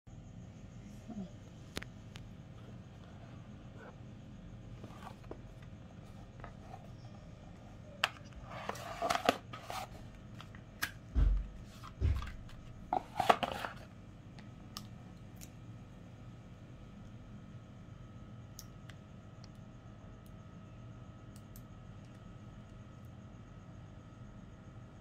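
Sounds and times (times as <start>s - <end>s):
cardboard box scraping and rustling: 8.4s - 10.0s.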